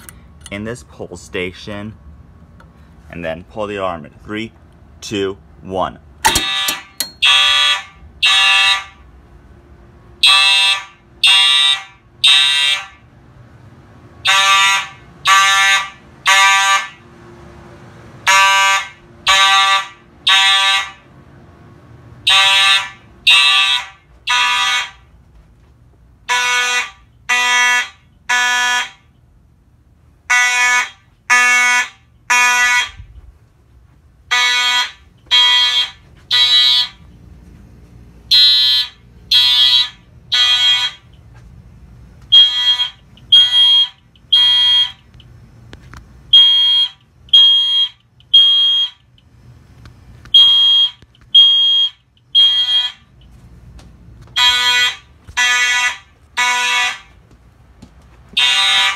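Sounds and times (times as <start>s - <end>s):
fire alarm horn blasts: 6.3s - 9.1s, 10.2s - 13.1s, 14.2s - 17.0s, 18.2s - 21.1s, 22.2s - 25.1s, 26.2s - 29.1s, 30.3s - 33.1s, 34.3s - 37.1s, 38.3s - 41.2s, 42.3s - 45.1s, 46.3s - 49.1s, 50.3s - 53.2s, 54.4s - 57.2s, 58.4s - 58.9s.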